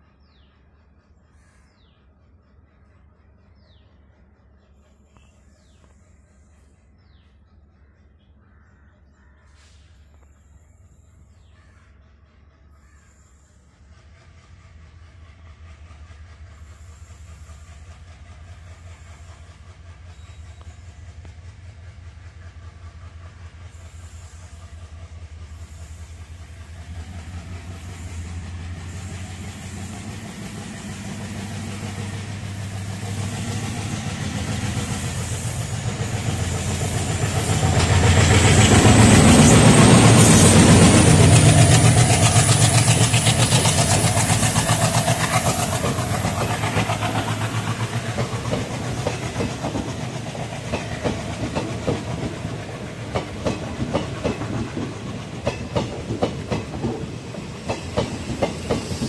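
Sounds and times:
diesel locomotive engine throbbing: 12.0 - 59.0
passenger coaches rolling past: 13.4 - 59.0.

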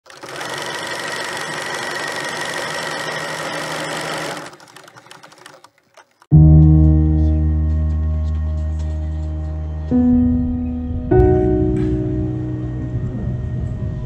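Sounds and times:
film projector whirring: 0.0 - 6.3
low musical chord: 6.3 - 14.0.

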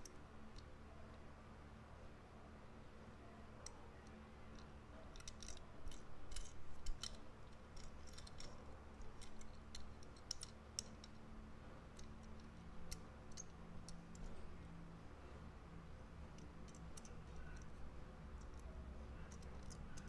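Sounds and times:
faint low hum: 0.0 - 20.0
light clicks and taps on toy car: 3.6 - 11.3, 11.9 - 14.4, 16.2 - 20.0.

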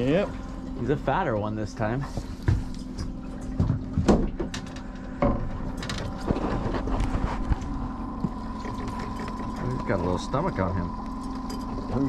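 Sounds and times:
boat motor humming: 0.0 - 12.0
knocks and thumps of handling: 2.2 - 7.4.

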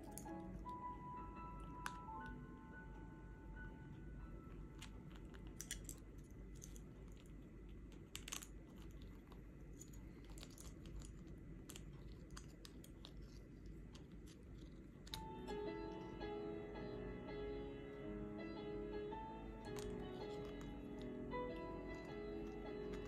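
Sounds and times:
parrot gnawing toy with beak: 4.4 - 15.2.

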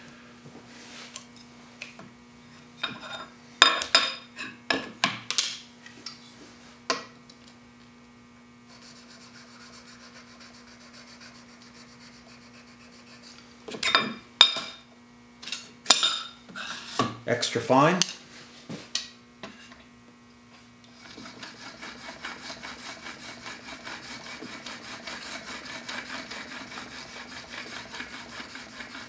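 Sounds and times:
steady low hum: 0.0 - 29.0
chisel rubbing on sharpening plate: 8.7 - 13.5, 21.0 - 29.0.

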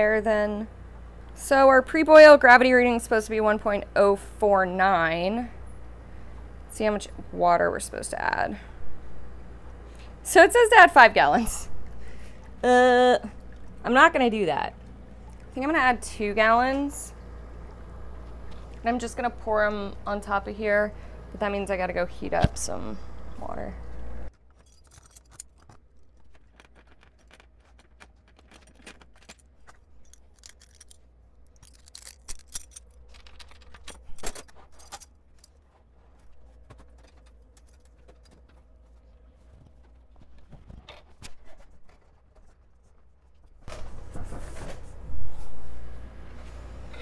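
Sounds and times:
small metal tools clinking: 24.5 - 26.7, 28.5 - 31.0.

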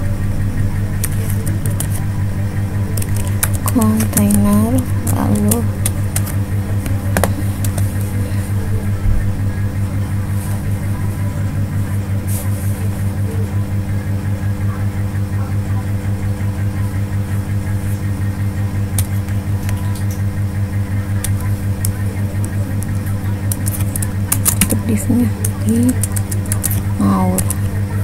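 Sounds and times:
low pulsing hum: 0.0 - 28.0
keyboard clicks: 1.0 - 2.0, 3.0 - 6.4, 23.5 - 27.7.

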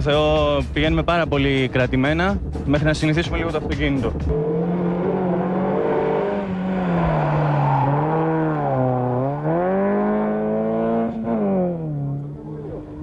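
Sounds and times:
rally car engine revving: 3.4 - 13.0.

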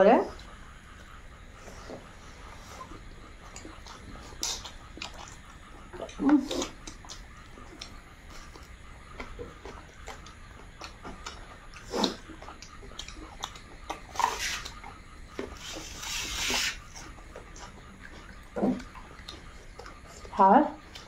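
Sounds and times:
wet chewing: 0.3 - 21.0
lip smacks: 2.7 - 21.0
hissing slurp or sniff: 11.8 - 12.2, 14.1 - 14.8, 15.5 - 17.1.

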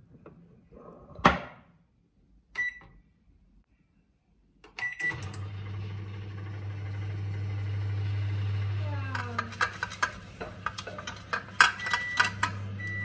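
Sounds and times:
microwave keypad beeps: 2.6 - 3.0, 4.8 - 5.3, 11.7 - 13.0
oven humming: 5.1 - 9.4, 10.2 - 13.0.

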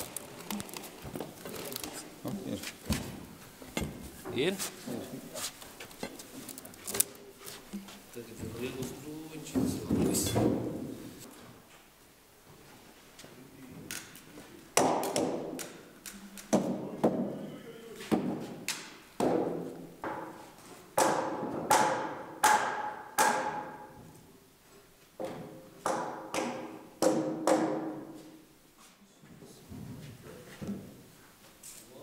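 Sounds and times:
heavy knocks on timber logs: 14.8 - 15.7, 19.2 - 20.4, 21.0 - 23.8, 25.2 - 28.1.

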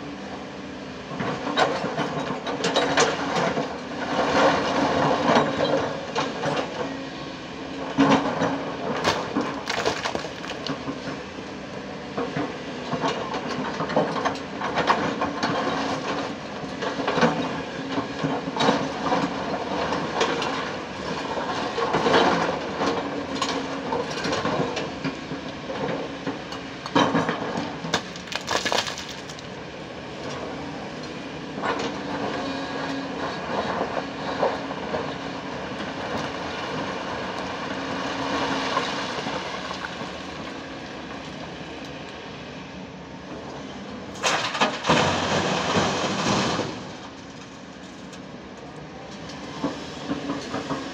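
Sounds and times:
excavator diesel engine running: 0.0 - 50.9
stones clattering and cracking: 9.0 - 10.8, 28.0 - 29.5.

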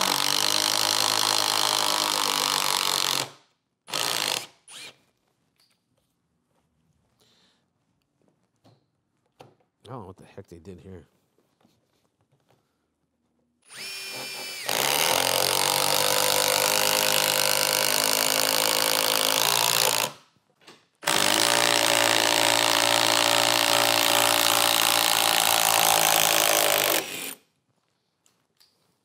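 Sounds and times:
impact driver whining: 0.0 - 5.0, 13.6 - 20.2, 21.0 - 27.4
impact driver hammering: 21.0 - 27.4.

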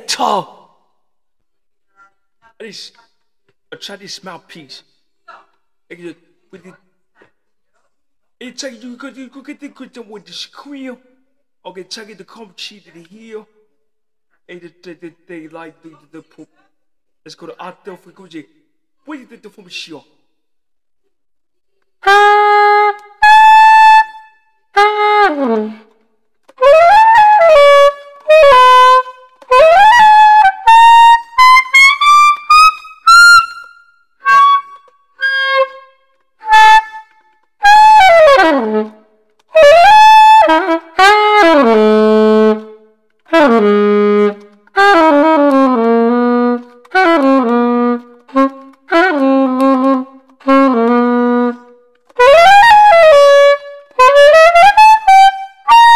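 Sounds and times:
soprano saxophone phrases: 39.6 - 55.4.

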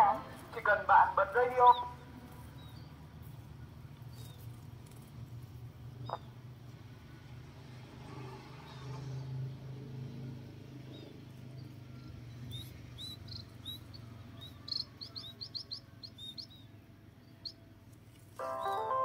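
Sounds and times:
small birds chirping: 1.4 - 6.6, 10.0 - 19.0.

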